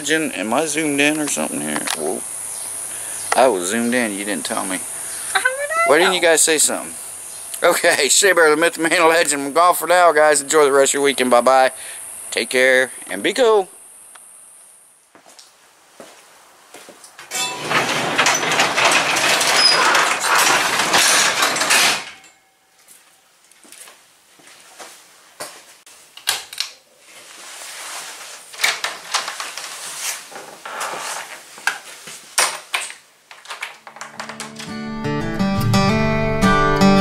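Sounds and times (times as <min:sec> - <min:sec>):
garage door rolling shut: 0:17.3 - 0:22.4.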